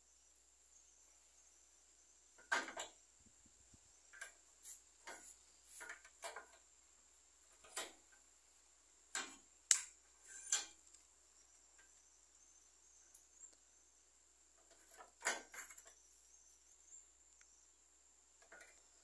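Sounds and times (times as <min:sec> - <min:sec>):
iron pieces clanking against vise: 0:10.2 - 0:10.8.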